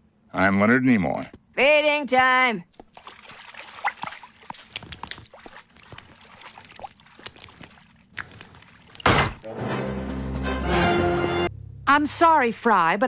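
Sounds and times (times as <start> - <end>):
bubbling water plops: 2.7 - 9.5.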